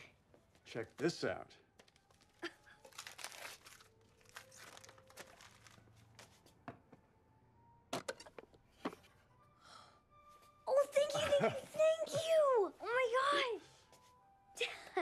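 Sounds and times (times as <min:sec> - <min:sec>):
wrapping paper crinkling and tearing: 0:01.8 - 0:06.4.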